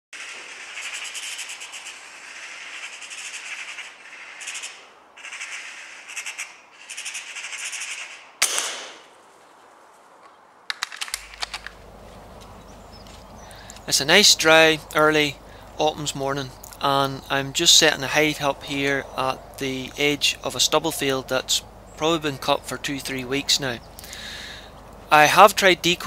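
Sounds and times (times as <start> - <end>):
magpie rattling chatter: 0.2 - 8.4, 10.7 - 26.0
loud gunshot: 8.4 - 9.1
sharp clicks: 10.7 - 13.9, 16.6 - 16.9, 23.8 - 25.0.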